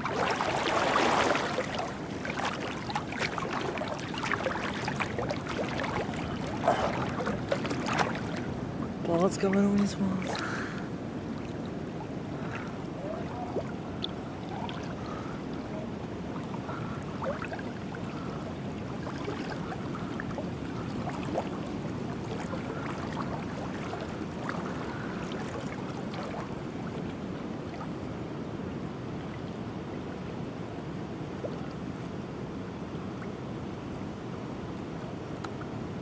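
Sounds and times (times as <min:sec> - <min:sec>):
pool water sloshing and splashing: 0:00.0 - 0:32.4.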